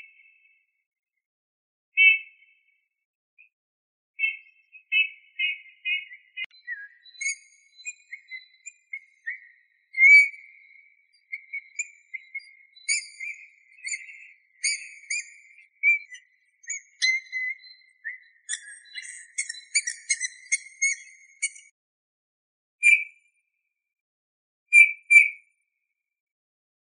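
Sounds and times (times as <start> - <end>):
bird singing whistled notes: 0.0 - 0.7, 2.0 - 2.7, 4.2 - 21.7, 22.8 - 23.2, 24.7 - 25.4.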